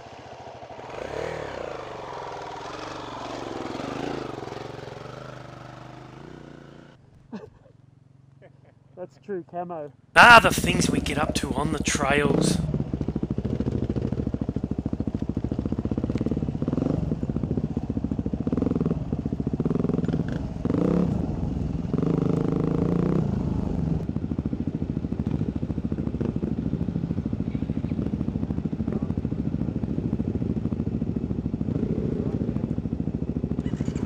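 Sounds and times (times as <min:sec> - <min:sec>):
dirt bike engine revving: 0:00.8 - 0:06.1.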